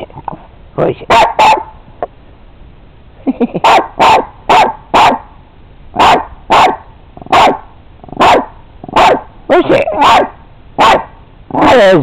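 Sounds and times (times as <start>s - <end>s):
small dog barking sharply: 1.1s - 1.7s, 3.6s - 5.3s, 6.0s - 7.6s, 8.2s - 9.3s, 10.0s - 11.7s.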